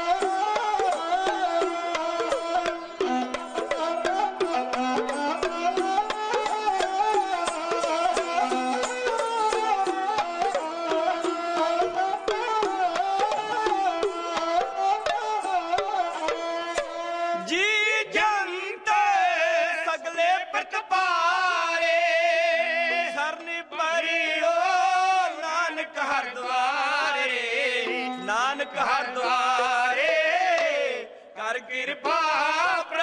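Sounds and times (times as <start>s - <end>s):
small hand drums tapping: 0.0s - 17.0s
bowed string instrument: 0.0s - 17.5s
men singing with vibrato: 0.0s - 33.0s.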